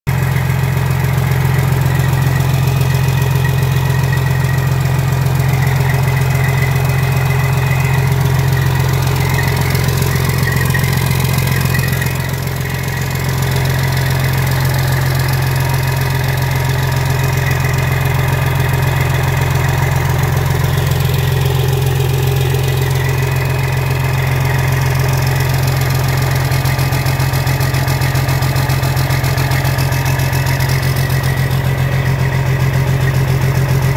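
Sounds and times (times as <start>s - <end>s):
diesel engine idling: 0.1s - 33.9s.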